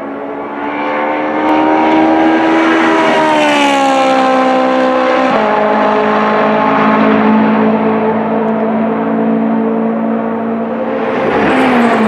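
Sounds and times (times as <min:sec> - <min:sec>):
race car engine at high revs: 0:00.0 - 0:12.0.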